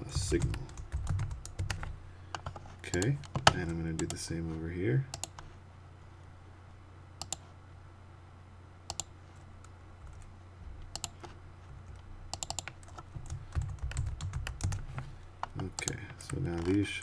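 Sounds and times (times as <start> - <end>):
steady low hum: 0.0 - 17.0
typing on computer keyboard: 0.4 - 1.9, 10.9 - 11.3, 11.9 - 14.8.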